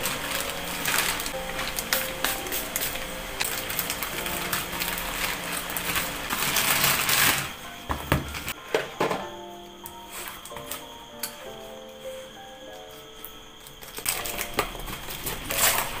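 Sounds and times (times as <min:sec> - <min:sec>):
plastic bag crinkling: 0:00.0 - 0:07.6, 0:13.8 - 0:16.0.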